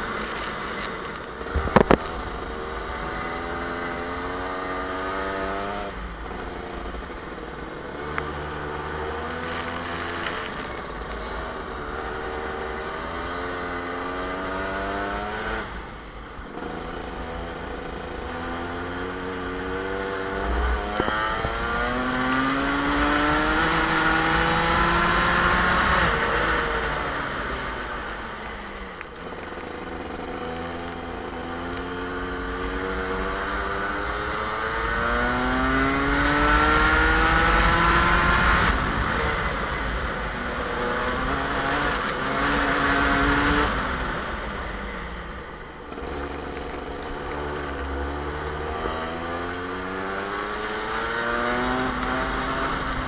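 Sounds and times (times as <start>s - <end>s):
kart engine revving: 0.0s - 53.0s.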